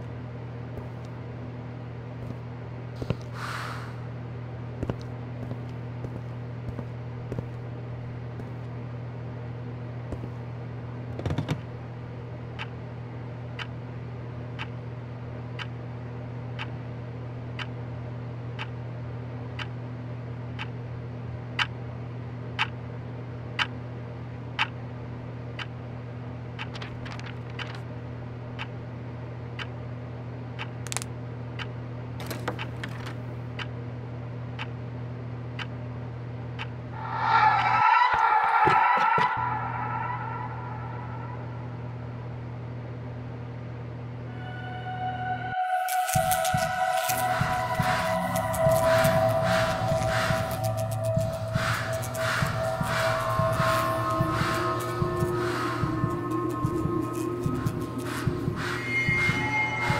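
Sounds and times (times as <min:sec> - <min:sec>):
steady low hum: 0:00.0 - 0:59.9
sharp ticks: 0:45.9 - 0:59.9.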